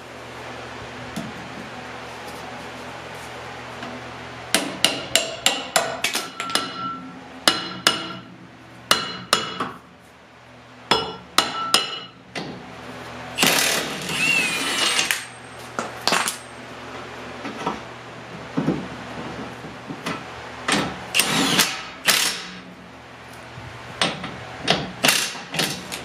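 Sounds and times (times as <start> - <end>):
hammer striking brake drum: 4.5 - 8.3, 8.9 - 9.8, 10.9 - 12.2.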